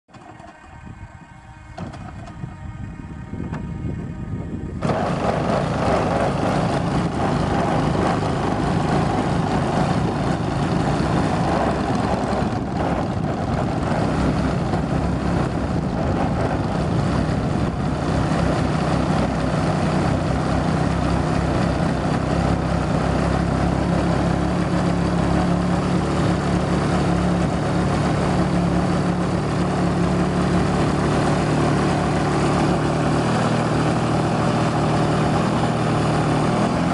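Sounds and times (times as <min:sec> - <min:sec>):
model plane engine running: 0:00.1 - 0:36.9.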